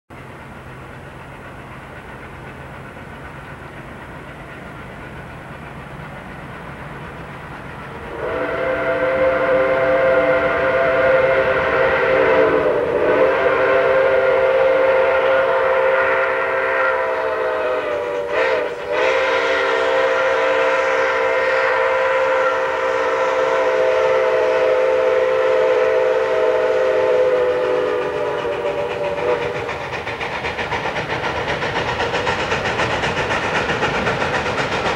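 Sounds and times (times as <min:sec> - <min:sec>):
steam locomotive chime whistle: 0:07.8 - 0:30.1.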